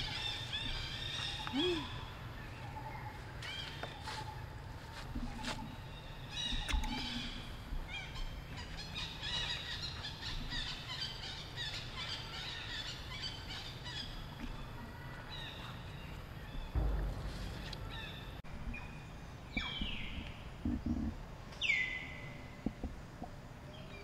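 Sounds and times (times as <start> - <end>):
steady low rumble: 12.6 - 23.6.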